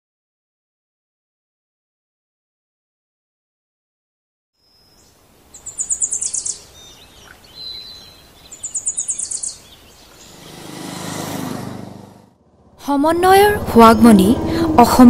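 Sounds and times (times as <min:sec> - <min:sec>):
songbird singing rapid high notes: 0:04.6 - 0:11.2
outdoor background hiss: 0:04.6 - 0:14.9
rush of noise: 0:10.1 - 0:13.0.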